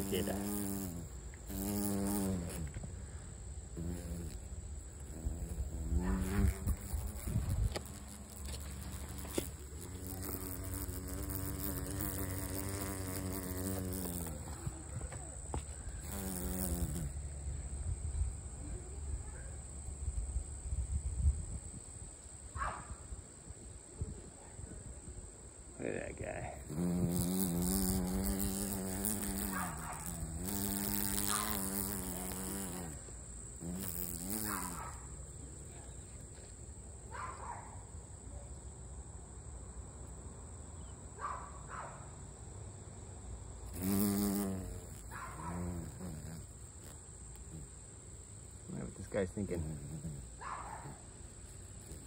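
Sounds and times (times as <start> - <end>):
wasp wings buzzing: 0.0 - 17.5, 26.6 - 35.4, 43.6 - 52.0.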